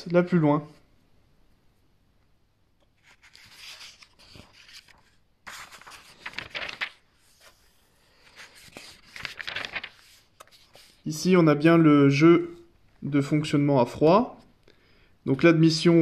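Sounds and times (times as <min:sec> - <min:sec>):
paper pages turning: 0:02.8 - 0:11.1.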